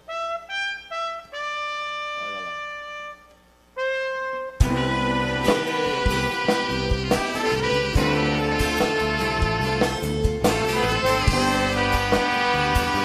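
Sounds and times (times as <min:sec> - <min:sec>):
slide trombone playing: 0:00.0 - 0:13.0
band with drums: 0:04.6 - 0:13.0.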